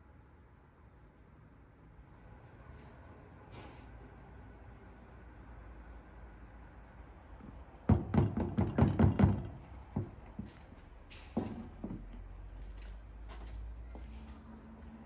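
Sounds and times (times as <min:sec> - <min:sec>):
metal baking tray knocking on table: 0:07.9 - 0:09.6.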